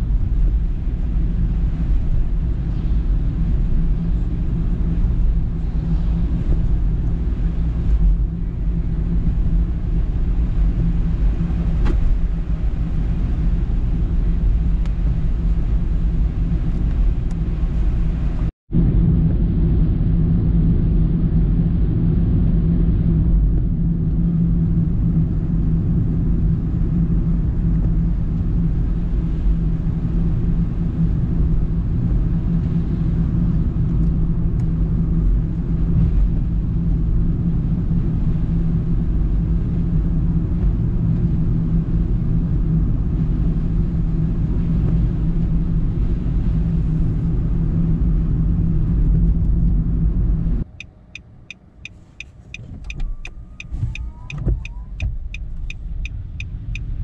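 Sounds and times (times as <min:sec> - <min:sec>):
car engine and tyres on wet road: 0:00.0 - 0:57.0.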